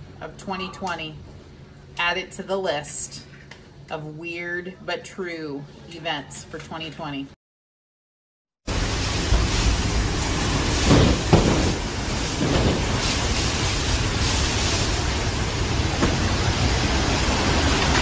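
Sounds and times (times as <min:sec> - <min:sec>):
windstorm with driving rain: 0:08.7 - 0:18.0.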